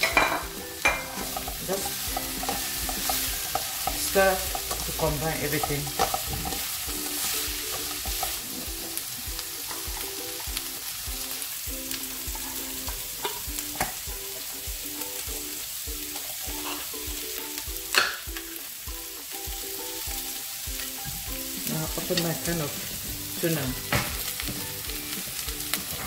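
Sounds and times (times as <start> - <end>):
potatoes sizzling in hot oil: 0.0 - 26.0.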